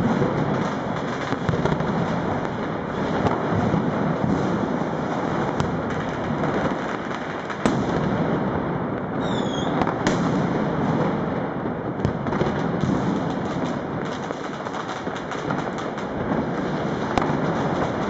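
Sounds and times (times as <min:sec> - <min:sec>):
firecrackers crackling: 0:00.0 - 0:18.0
firework bangs: 0:00.0 - 0:18.0
falling firework whistle: 0:09.2 - 0:10.4.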